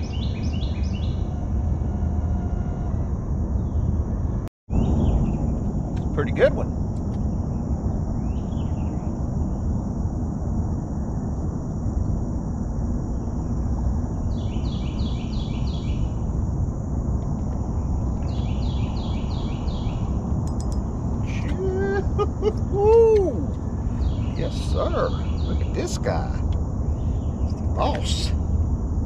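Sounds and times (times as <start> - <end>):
songbird singing: 0.0 - 2.7, 3.5 - 9.7, 13.1 - 16.3, 17.4 - 28.5
low outdoor noise: 0.0 - 29.0.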